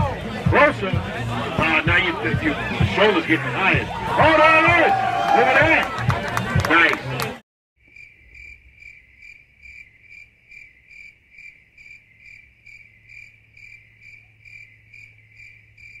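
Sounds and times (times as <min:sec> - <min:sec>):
crickets chirping: 0:07.8 - 0:16.0.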